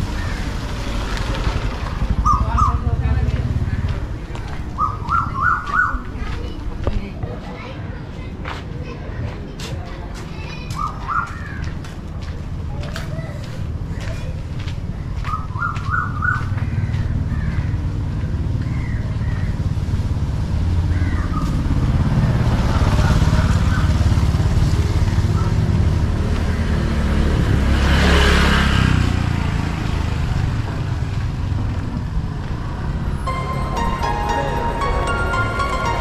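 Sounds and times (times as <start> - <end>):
motor scooter engine running: 0.5 - 5.2.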